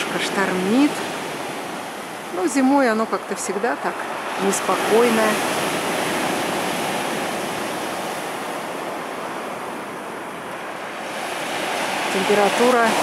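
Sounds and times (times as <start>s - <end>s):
surf breaking on shingle beach: 10.6s - 13.0s.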